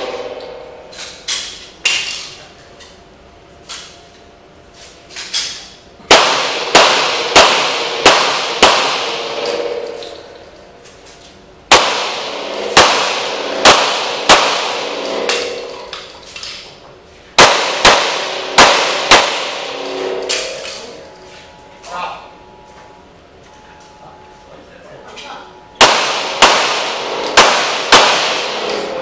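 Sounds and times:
handgun shots echoing indoors: 0:05.3 - 0:10.4, 0:11.7 - 0:16.6, 0:17.4 - 0:21.0, 0:25.8 - 0:29.0.

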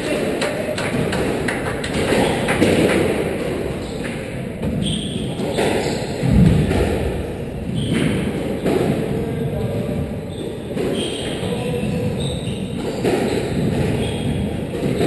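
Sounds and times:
squash ball hits: 0:00.9 - 0:09.1, 0:12.8 - 0:15.0
heavy low thud: 0:06.2 - 0:07.3.

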